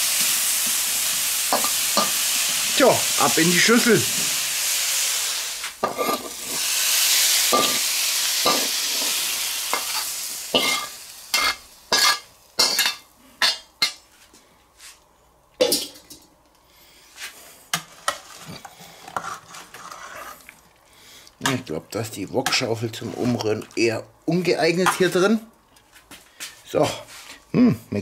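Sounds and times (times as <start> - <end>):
vegetables sizzling in a wok: 0.0 - 14.2, 17.1 - 25.3
metal spatula scraping wok: 17.8 - 20.4.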